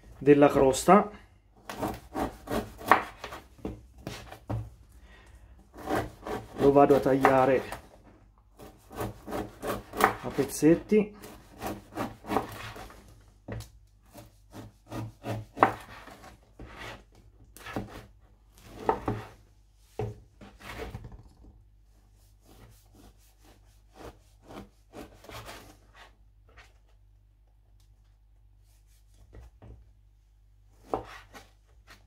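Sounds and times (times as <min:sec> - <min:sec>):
knife sawing bread: 0:01.6 - 0:03.4, 0:05.7 - 0:13.1, 0:14.0 - 0:19.4, 0:22.1 - 0:26.2.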